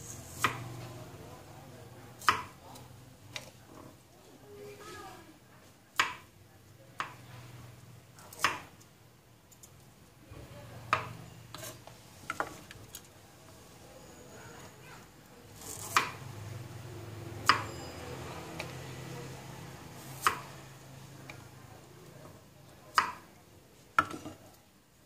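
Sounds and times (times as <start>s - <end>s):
knife chopping on wooden board: 8.4s - 8.7s.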